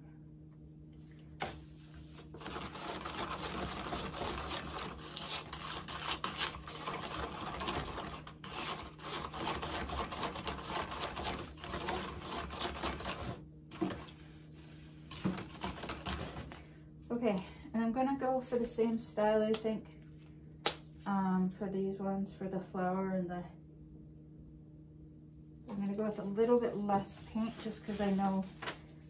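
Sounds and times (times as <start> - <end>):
concrete stirred in plastic cup: 2.3 - 14.2, 15.1 - 16.6.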